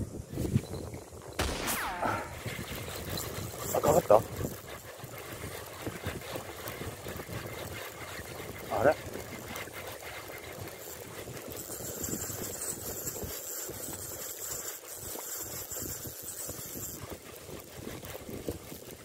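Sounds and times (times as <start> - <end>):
wind buffeting microphone: 0.0 - 9.8
fishing reel being cranked: 2.6 - 19.0.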